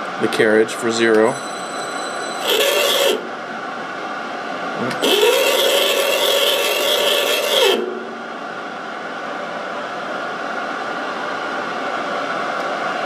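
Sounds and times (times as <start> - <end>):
metal lathe running: 1.4 - 8.8
tool scraping turning metal: 2.1 - 3.4, 5.0 - 8.4.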